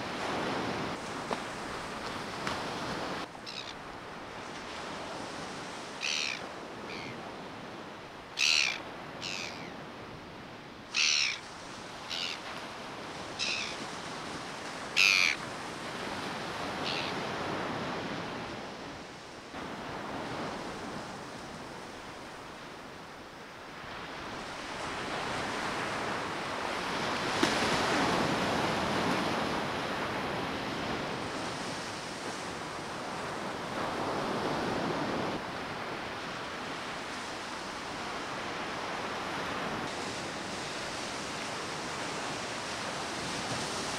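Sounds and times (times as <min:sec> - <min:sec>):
bird calling sharply: 0:06.0 - 0:07.2, 0:08.4 - 0:09.7, 0:10.9 - 0:11.4, 0:12.1 - 0:12.4, 0:13.4 - 0:13.8, 0:15.0 - 0:15.4
surf breaking on beach: 0:24.4 - 0:43.9.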